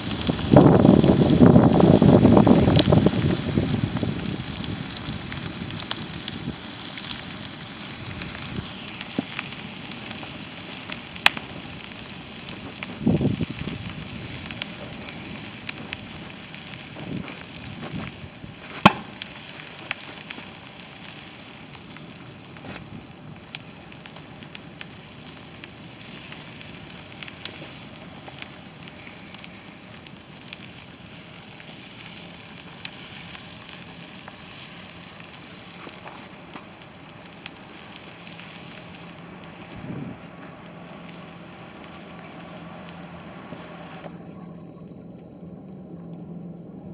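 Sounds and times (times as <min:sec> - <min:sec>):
flames hissing and crackling: 0:00.0 - 0:46.9
sharp pops: 0:17.0 - 0:20.2.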